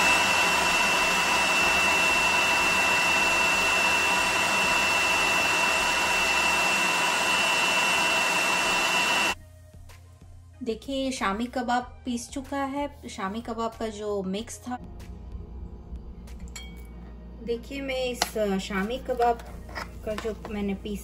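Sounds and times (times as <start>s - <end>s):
food processor motor whining: 0.0s - 9.4s.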